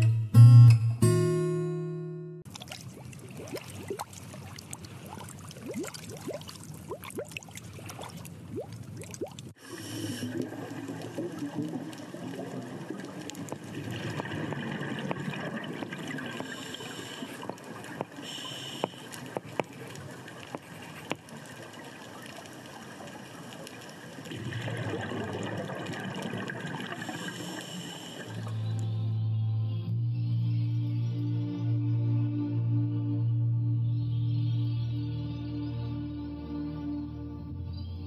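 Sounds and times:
underwater bubbles rushing and gurgling: 2.5s - 28.5s.

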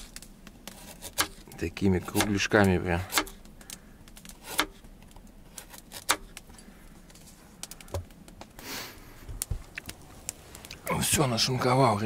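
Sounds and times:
knife chopping on cutting board: 2.0s - 2.4s.

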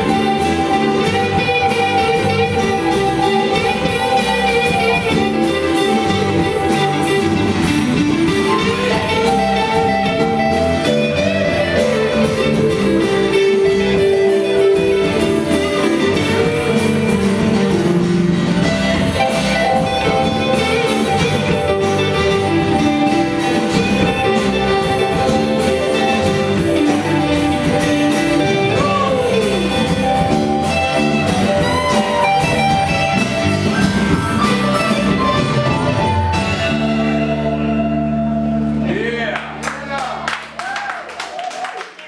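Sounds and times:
harmonica: 0.0s - 38.7s
blues-rock band playing: 0.0s - 40.6s.

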